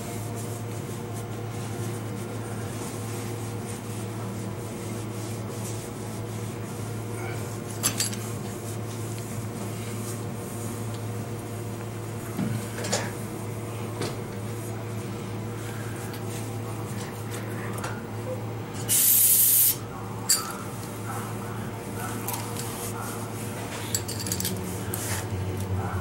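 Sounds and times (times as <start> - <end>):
steady low hum: 0.0 - 26.0
cloth rubbing on metal: 0.2 - 10.8, 21.8 - 26.0
metal clinks and knocks: 23.9 - 24.6.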